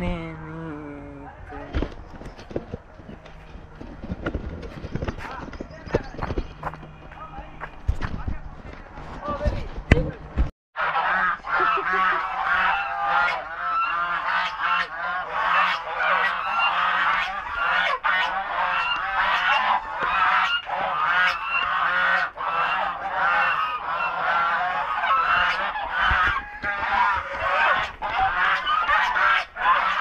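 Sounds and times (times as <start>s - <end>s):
geese honking: 10.8s - 30.0s.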